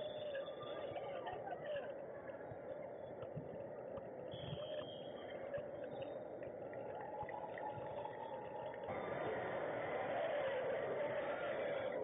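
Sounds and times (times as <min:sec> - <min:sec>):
murmur of voices: 0:00.0 - 0:03.6.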